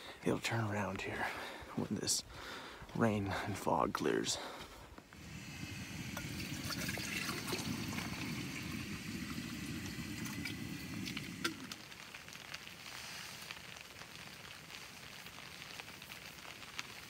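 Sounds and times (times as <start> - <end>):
rain pattering on tent: 0.0 - 17.0
gas stove burning: 5.1 - 12.7.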